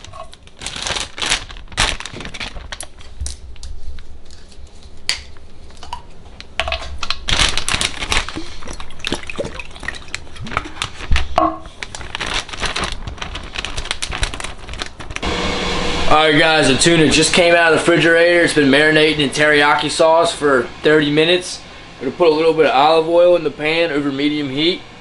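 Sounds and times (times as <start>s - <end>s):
plastic bag crinkling: 0.0s - 5.0s, 7.0s - 15.2s.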